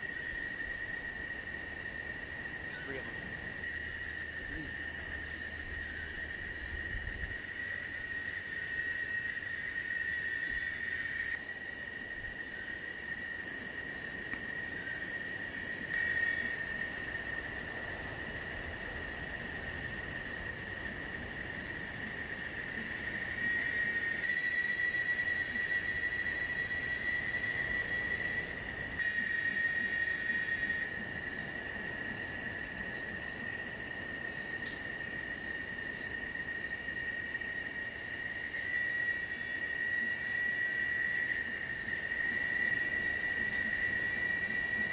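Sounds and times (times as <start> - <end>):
high insect buzz: 0.0 - 44.9
insects trilling: 0.0 - 44.9.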